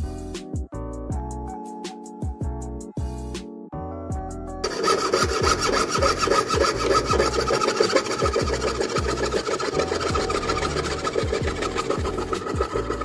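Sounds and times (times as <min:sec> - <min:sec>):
background music with steady beat: 0:00.0 - 0:07.6
hand tool rasping metal: 0:04.6 - 0:13.0.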